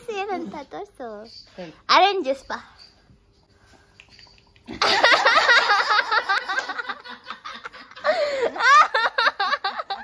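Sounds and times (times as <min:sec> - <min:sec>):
people laughing hard: 0:04.8 - 0:10.0.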